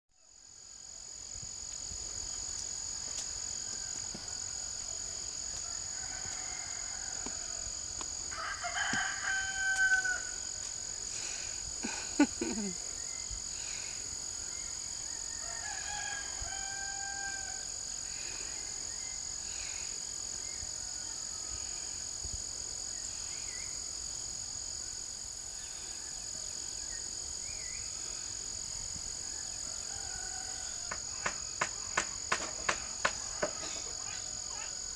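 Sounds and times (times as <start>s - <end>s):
insect chorus: 0.2s - 34.9s
rooster crowing: 3.0s - 10.5s, 15.0s - 17.8s, 29.2s - 32.0s.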